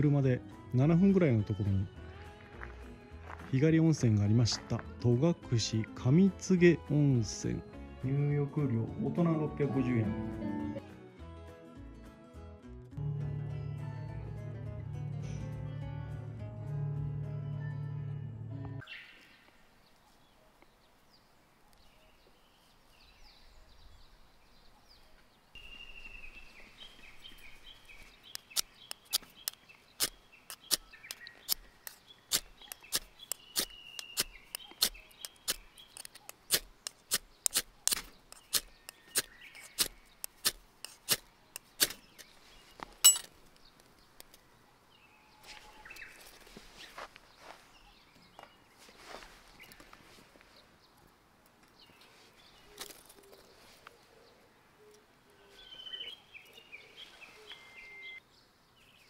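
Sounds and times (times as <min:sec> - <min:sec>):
fire-starter rod scraped: 0:28.3 - 0:42.3.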